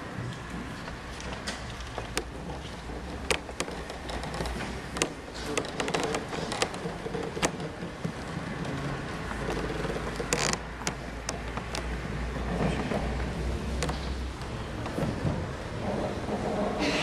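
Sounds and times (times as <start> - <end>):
knocks and creaks of wooden stairs: 0.0 - 17.0.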